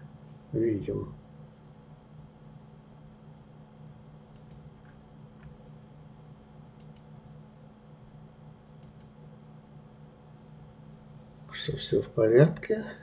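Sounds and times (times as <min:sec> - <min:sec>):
steady low hum: 0:00.0 - 0:13.0
computer mouse clicking: 0:04.3 - 0:05.6, 0:06.8 - 0:07.1, 0:08.8 - 0:09.2.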